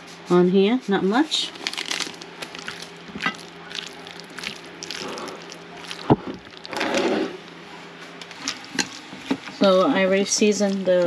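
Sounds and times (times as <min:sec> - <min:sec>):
wet squishing of raw seafood: 0:01.5 - 0:09.6.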